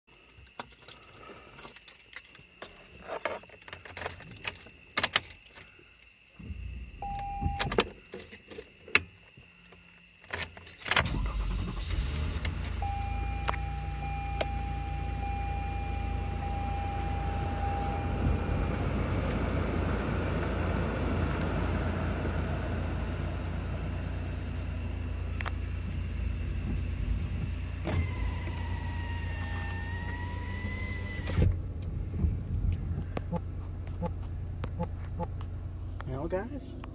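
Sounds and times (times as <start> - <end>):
keys jangling: 0.7 - 5.7
car engine idling: 11.1 - 36.9
thin steady tone: 12.6 - 18.7.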